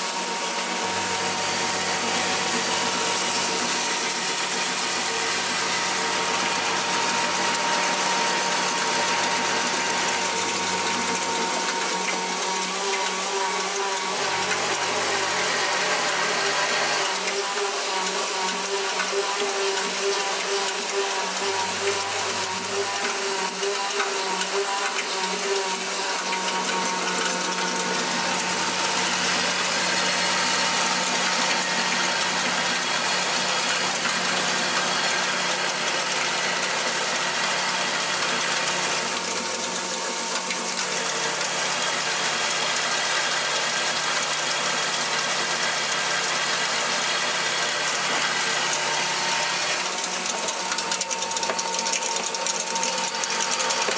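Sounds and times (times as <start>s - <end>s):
machine mechanical rattle: 49.6s - 53.9s.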